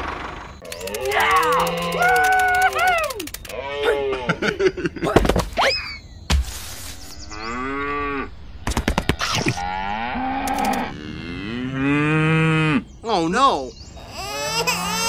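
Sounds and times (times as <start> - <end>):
short clicks: 0.6 - 3.6, 10.4 - 10.9
cow mooing: 9.6 - 12.8.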